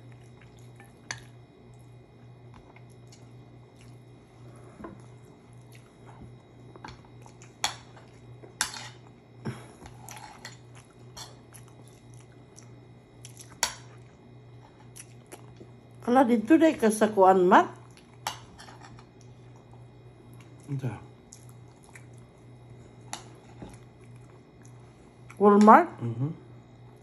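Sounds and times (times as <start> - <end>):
steady low hum: 0.0 - 27.0
chewing: 9.9 - 15.8, 19.2 - 25.4.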